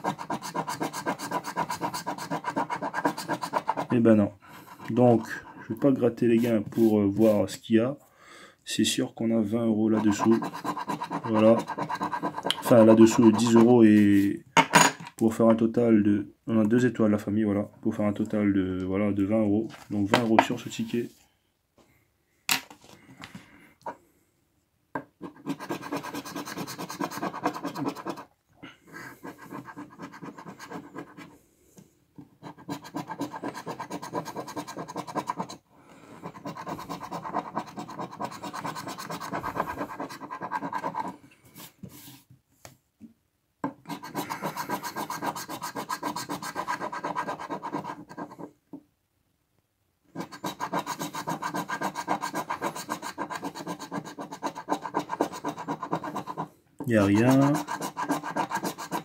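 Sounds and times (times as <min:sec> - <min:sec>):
coin scraping scratch card: 0:00.0 - 0:03.9, 0:09.9 - 0:13.6, 0:25.2 - 0:28.2, 0:29.0 - 0:31.3, 0:32.4 - 0:35.6, 0:36.2 - 0:41.2, 0:43.9 - 0:48.4, 0:50.2 - 0:59.0.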